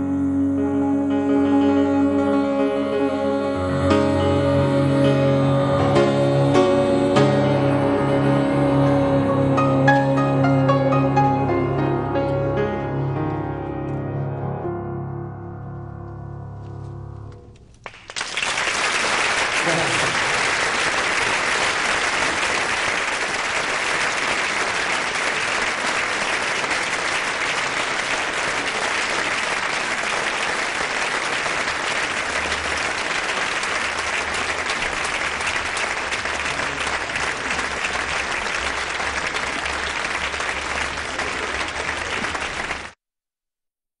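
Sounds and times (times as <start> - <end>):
audience applauding: 17.8 - 43.0.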